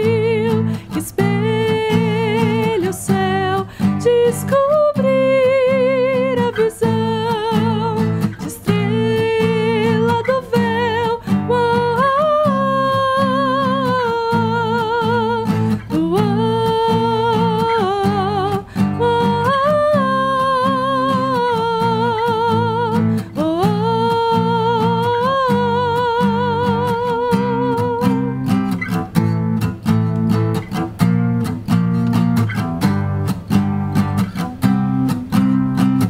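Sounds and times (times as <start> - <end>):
woman singing with vibrato: 0.0 - 28.7
strummed acoustic guitar: 0.0 - 36.0.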